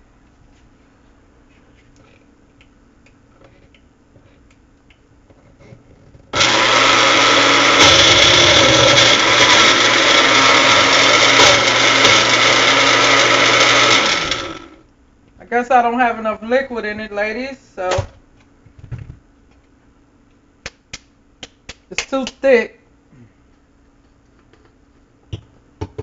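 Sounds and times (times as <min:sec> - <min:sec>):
blender motor running: 0:06.4 - 0:14.8.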